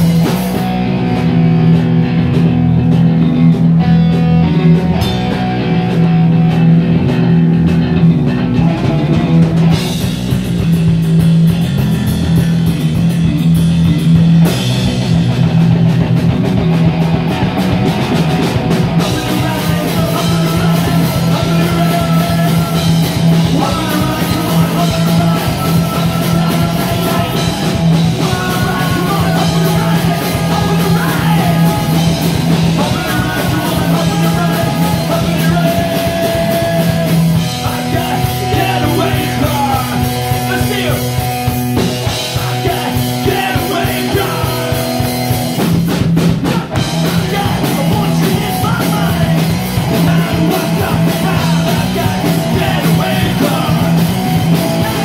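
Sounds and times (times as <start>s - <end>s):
punk rock band playing: 0.0s - 55.0s
person singing: 19.0s - 41.3s, 42.0s - 45.4s, 46.4s - 55.0s.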